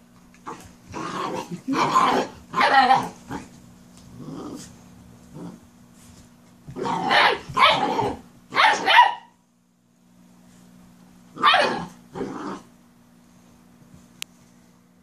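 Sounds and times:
puppies growling and barking: 0:00.4 - 0:05.7, 0:06.7 - 0:09.0, 0:11.4 - 0:12.7.

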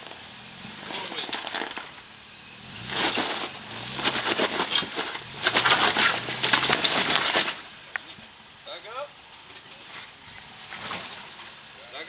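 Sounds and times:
tyres crunching over rock: 0:00.0 - 0:02.0, 0:02.8 - 0:08.5
engine low hum: 0:00.0 - 0:12.0.

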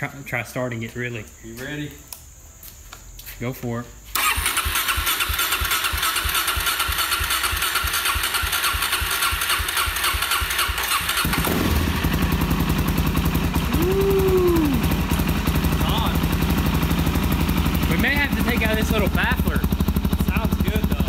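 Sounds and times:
electric starter cranking engine: 0:04.1 - 0:12.6
motorcycle engine idling: 0:04.2 - 0:21.0.

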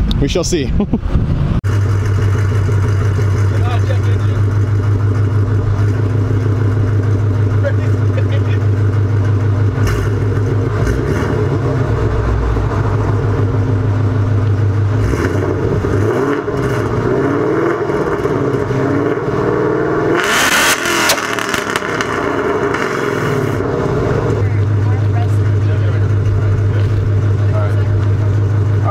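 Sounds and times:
car engine idling and revving: 0:00.9 - 0:28.9
loud exhaust blast: 0:01.1 - 0:28.9.

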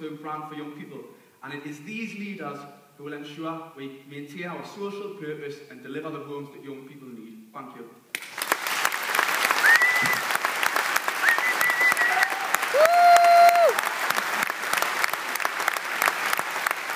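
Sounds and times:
audience applauding: 0:08.2 - 0:16.9
crowd calls: 0:11.2 - 0:13.8.

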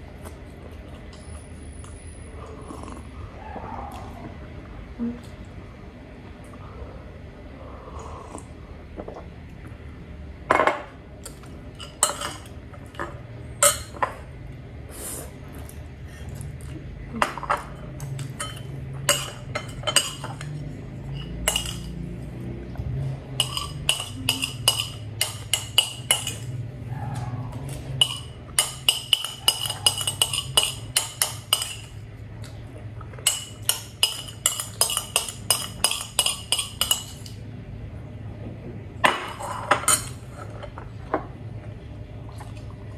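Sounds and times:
cutlery clinking against ceramic bowl: 0:11.8 - 0:14.2, 0:17.3 - 0:22.0, 0:23.3 - 0:26.5, 0:27.7 - 0:32.0, 0:33.2 - 0:37.4.

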